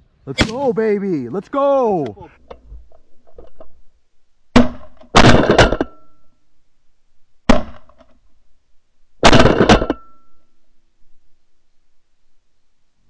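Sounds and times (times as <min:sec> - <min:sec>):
shotgun blasts: 0:00.3 - 0:01.0, 0:04.5 - 0:05.9, 0:09.2 - 0:10.1.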